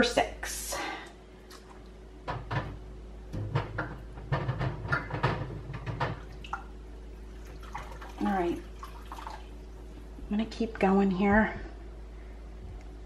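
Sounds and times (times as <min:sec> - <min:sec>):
faint steady hum: 0:00.0 - 0:13.0
kitchen items clattering: 0:03.4 - 0:06.3.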